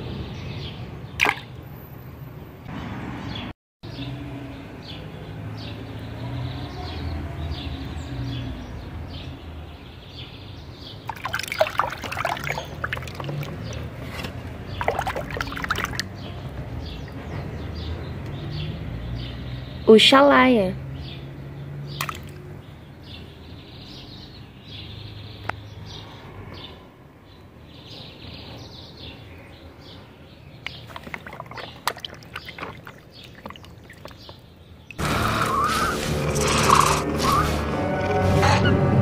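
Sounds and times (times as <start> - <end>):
water dripping and splashing in tub: 1.2 - 1.6, 11.0 - 16.6, 21.9 - 22.6, 30.6 - 35.0.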